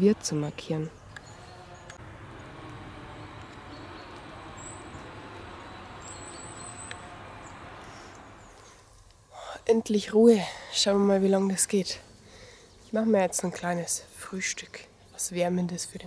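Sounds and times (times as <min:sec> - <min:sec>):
distant forestry machine engine drone: 0:01.1 - 0:08.8.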